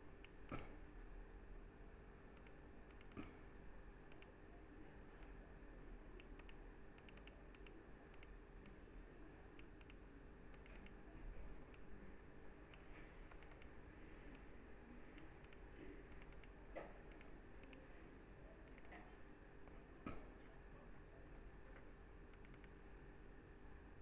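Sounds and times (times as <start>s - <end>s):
low steady hum: 0.0s - 24.0s
computer mouse and keyboard clicks: 2.4s - 3.4s, 4.1s - 4.4s, 6.2s - 8.8s, 9.6s - 11.0s, 12.7s - 13.7s, 15.2s - 17.9s, 18.6s - 19.1s, 22.3s - 22.8s.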